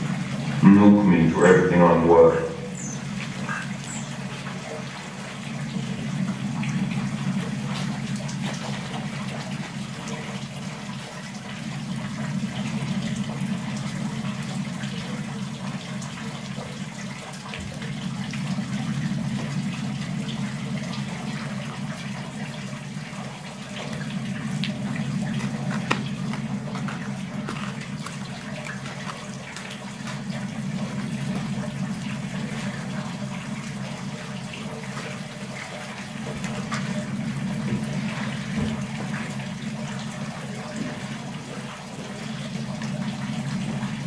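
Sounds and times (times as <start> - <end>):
low drone: 0.0 - 4.8.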